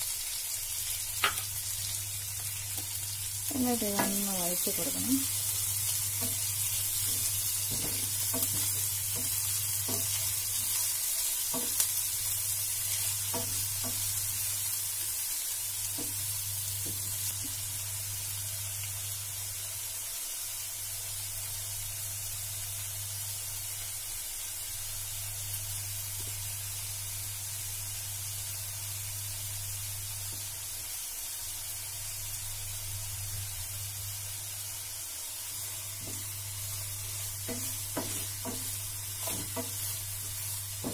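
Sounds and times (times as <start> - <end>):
onions sizzling in oil: 0.0 - 40.9
wooden spatula scraping pan: 37.0 - 40.9.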